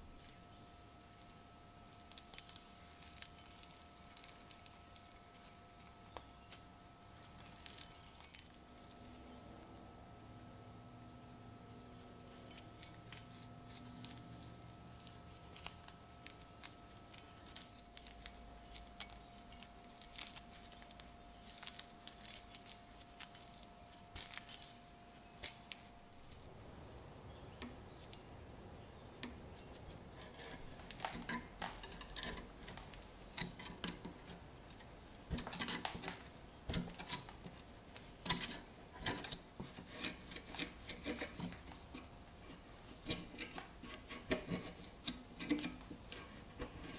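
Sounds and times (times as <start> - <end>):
clicks and rubs of handled metal: 29.2 - 46.9
metal pick scraping rust: 30.1 - 34.4.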